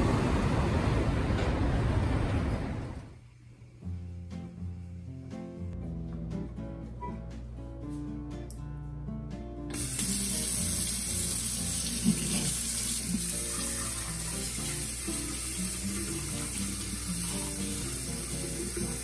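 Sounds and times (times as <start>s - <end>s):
faucet water running into sink: 9.7s - 19.0s.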